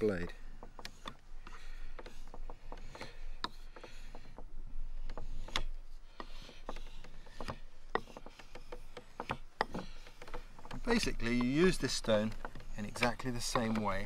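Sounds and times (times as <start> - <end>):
knife scraping on whetstone: 5.1 - 14.0.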